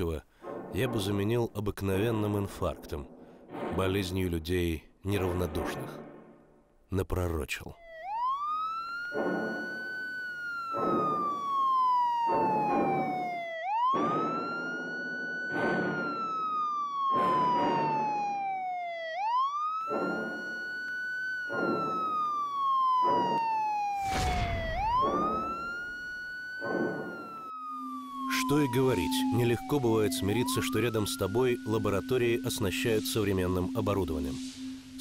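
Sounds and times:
emergency siren wailing: 7.7 - 35.0
regular pulsing sound: 19.9 - 23.4, 24.0 - 35.0.

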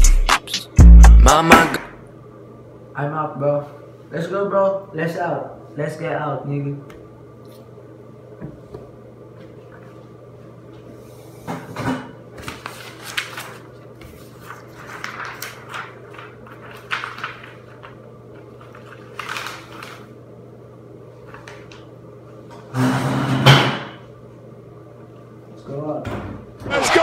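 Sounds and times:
paper rustling: 12.4 - 20.1.

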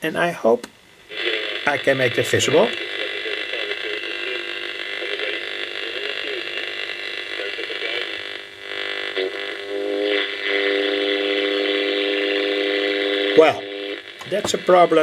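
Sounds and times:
radio static hiss: 0.0 - 15.0
faint radio voice: 1.1 - 8.4.

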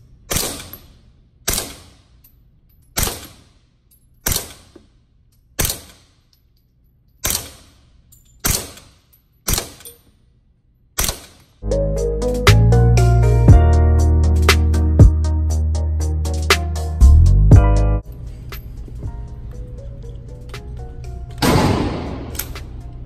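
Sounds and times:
suppressed gunshots with echo: 21.4 - 22.8.

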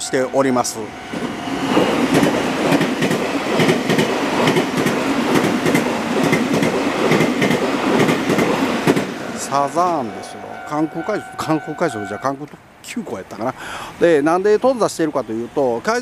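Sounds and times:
crossing warning bell ringing: 0.0 - 2.0, 9.4 - 12.6
train wheels clacking over rail joints: 1.7 - 9.2.

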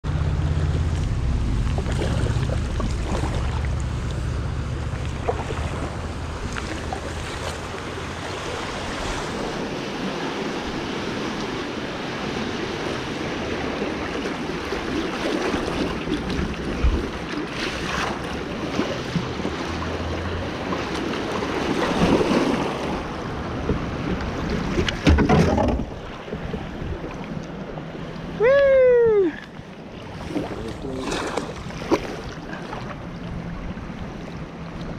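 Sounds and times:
river water rushing: 0.1 - 24.5
paddle splashes: 0.6 - 34.9.

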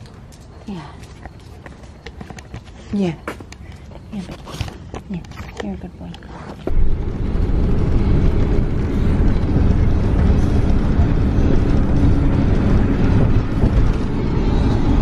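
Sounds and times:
road noise inside moving van: 5.1 - 15.0.

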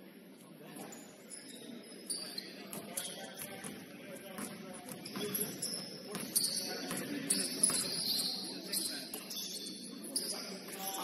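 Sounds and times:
murmur of distant voices: 0.0 - 11.0
sneakers squeaking on court: 0.9 - 11.0
basketball bouncing: 2.7 - 8.0.

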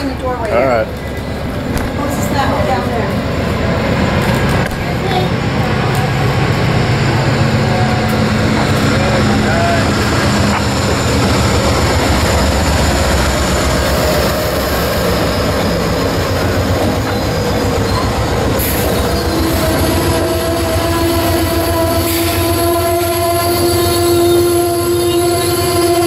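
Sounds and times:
train wheel rumble and clatter: 0.0 - 26.0
high-pitched brake squeal: 14.5 - 26.0.

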